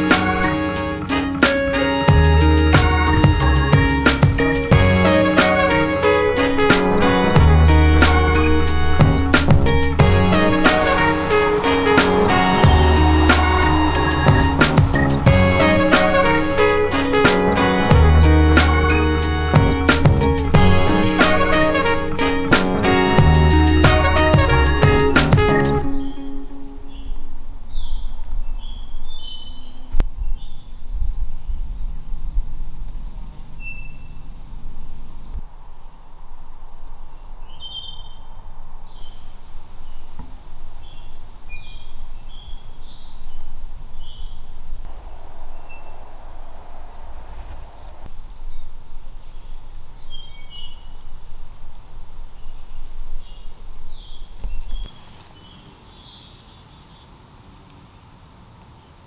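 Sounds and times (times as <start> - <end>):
low rumble: 7.0 - 21.2, 43.8 - 50.1
bird chirps: 25.5 - 32.4, 33.3 - 35.8, 37.1 - 57.2.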